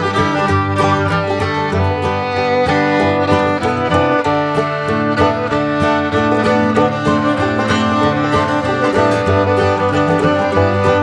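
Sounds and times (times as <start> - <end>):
fiddle and guitar country tune: 0.0 - 11.0.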